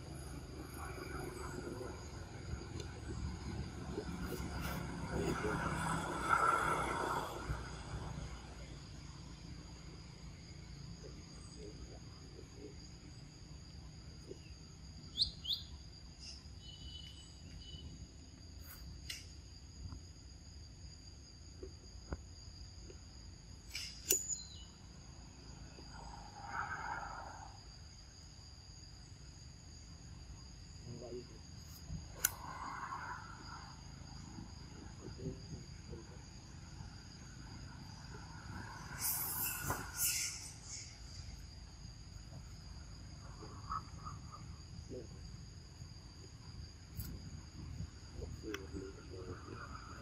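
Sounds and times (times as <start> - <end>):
insects buzzing: 0.0 - 50.0
sharp click: 23.7 - 24.4, 32.2 - 32.4
faint short chirps: 39.0 - 41.1.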